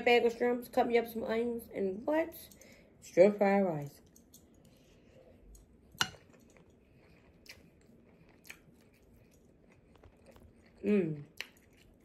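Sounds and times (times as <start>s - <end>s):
mouth chewing food: 4.2s - 12.0s.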